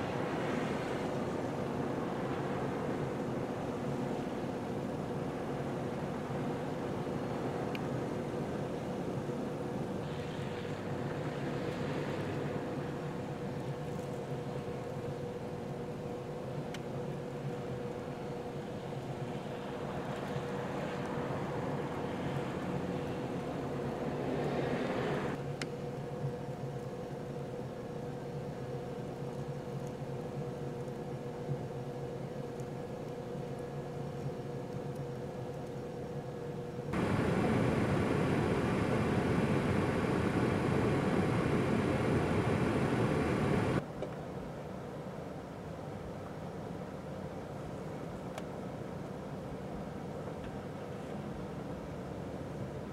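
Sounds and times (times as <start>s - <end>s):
steady hiss: 0.0s - 43.8s
rushing noise: 37.0s - 43.8s
vehicle engine humming: 37.0s - 43.8s.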